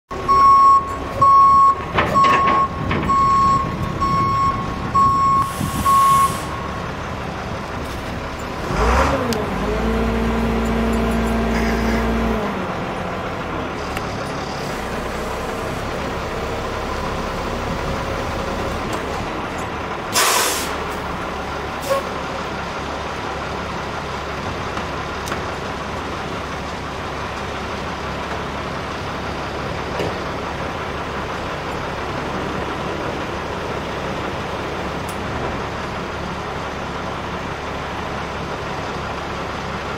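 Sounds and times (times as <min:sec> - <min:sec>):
truck reversing alarm beeping: 0:00.1 - 0:07.3
diesel engine running: 0:00.1 - 0:39.9
air hiss: 0:05.4 - 0:06.6, 0:20.2 - 0:20.8.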